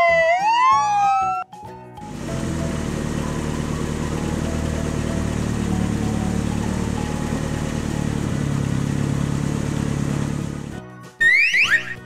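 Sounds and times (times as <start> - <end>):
toy ambulance engine hum: 2.0 - 8.7.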